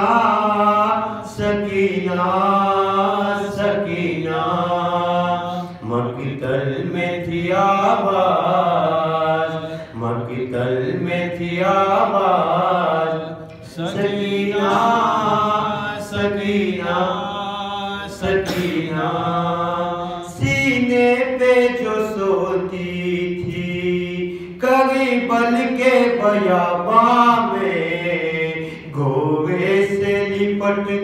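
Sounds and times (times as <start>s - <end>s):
man chanting: 13.8s - 31.0s.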